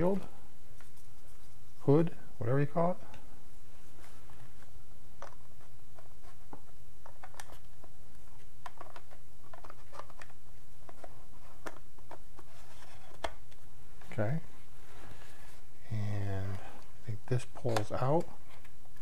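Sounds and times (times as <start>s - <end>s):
steady low hum: 0.0s - 19.0s
plastic lens hood clicking and scraping: 6.0s - 13.6s.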